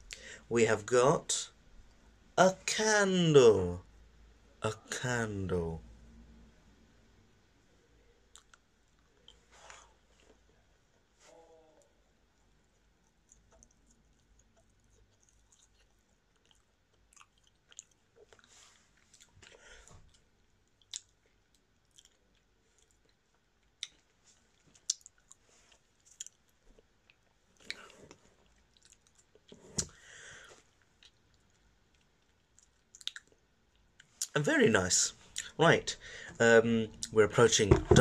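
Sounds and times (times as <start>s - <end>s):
person chewing: 8.3s - 9.5s, 13.0s - 34.3s
wet mouth clicks and smacks: 24.8s - 25.4s, 32.0s - 33.4s.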